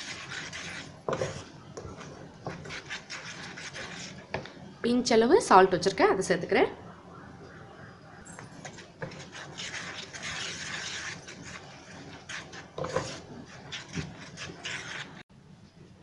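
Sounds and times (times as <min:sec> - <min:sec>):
wooden spatula scraping a pan: 0:00.0 - 0:04.4, 0:08.4 - 0:15.3.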